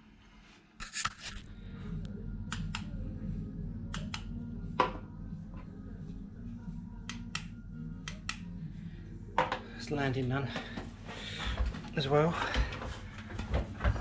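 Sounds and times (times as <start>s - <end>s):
low hum: 1.3s - 14.0s
light switch clicks: 3.9s - 4.3s, 7.1s - 8.5s.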